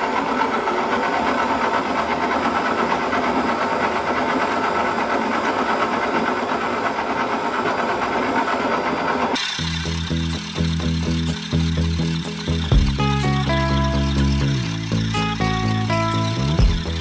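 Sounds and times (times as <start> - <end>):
stand mixer motor running: 0.0 - 17.0
background music: 9.6 - 17.0.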